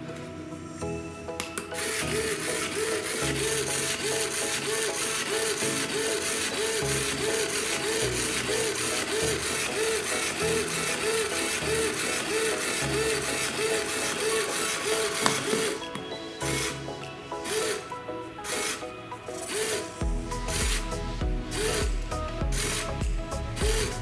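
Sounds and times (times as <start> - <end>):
small electric motor whirring: 1.8 - 15.8.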